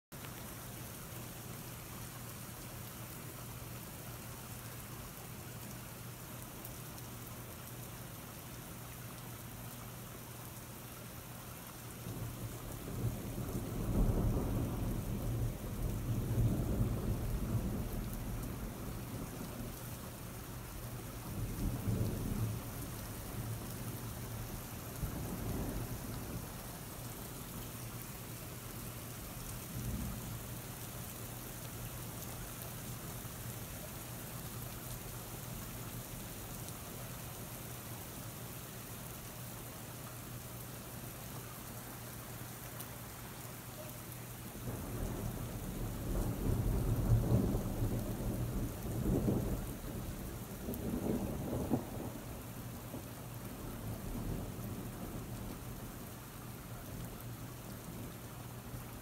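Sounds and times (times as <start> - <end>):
steady rain: 0.1 - 59.0
thunder rumbling: 12.3 - 19.8, 21.1 - 27.2, 44.6 - 55.7.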